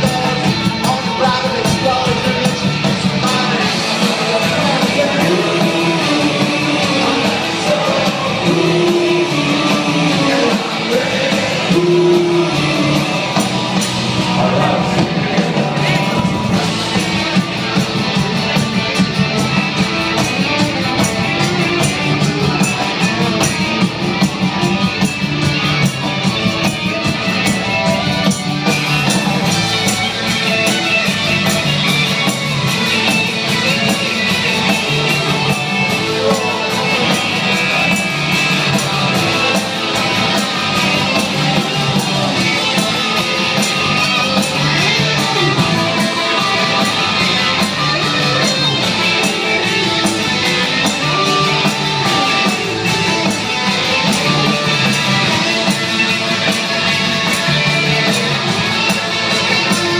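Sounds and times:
person singing: 0.0s - 16.8s, 33.2s - 55.7s
drums: 0.0s - 59.9s
electric guitars: 0.0s - 59.9s.

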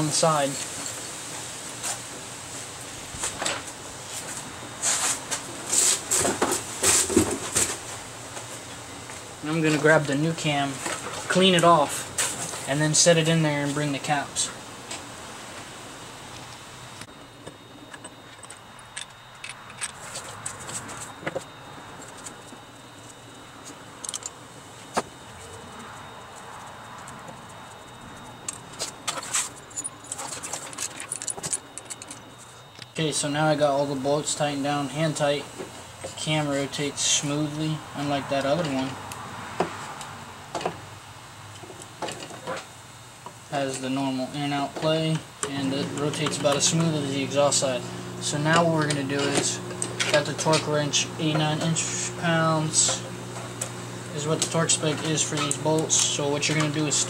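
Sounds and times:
engine parts being handled: 17.4s - 33.0s
small metal parts clinking: 17.9s - 20.6s, 24.0s - 24.4s, 28.4s - 32.9s.

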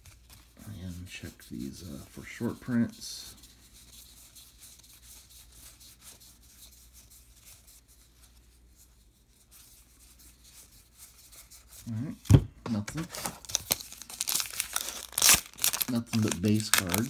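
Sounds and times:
cards rubbing and ticking: 13.1s - 17.0s.

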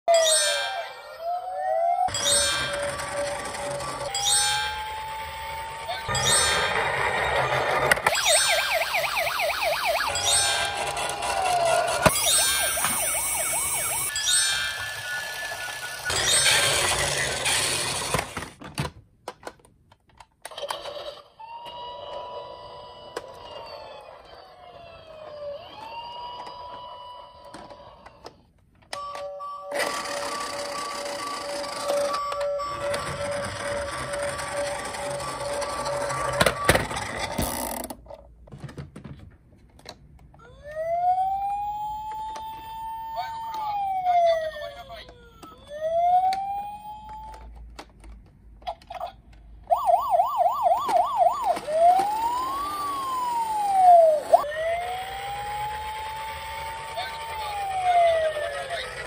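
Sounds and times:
toy electronic siren wailing: 0.1s - 18.3s, 20.8s - 28.4s, 29.0s - 37.8s, 40.4s - 47.5s, 49.7s - 59.0s
toy police car sound effect: 0.1s - 18.6s, 20.4s - 37.9s, 40.4s - 47.9s, 48.6s - 59.0s
plastic toy cars clattering: 2.1s - 4.3s, 14.8s - 40.6s, 50.6s - 59.0s.

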